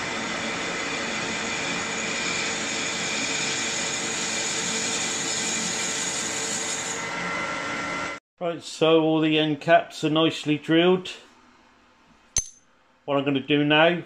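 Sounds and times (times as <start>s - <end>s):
lathe machine whine: 0.0s - 8.2s.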